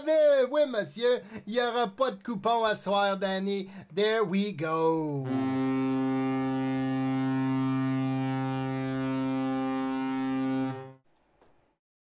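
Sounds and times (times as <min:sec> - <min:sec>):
low horn sound effect: 0:05.2 - 0:11.0.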